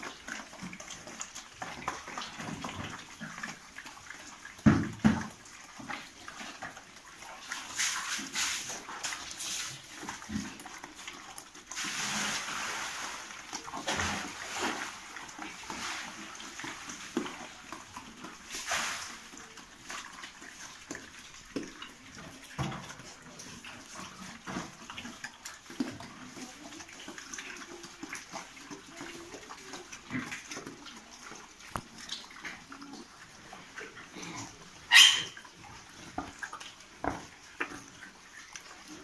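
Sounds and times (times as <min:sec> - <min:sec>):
pigs chewing and snuffling: 0:00.0 - 0:39.0
pigs grunting: 0:32.3 - 0:39.0.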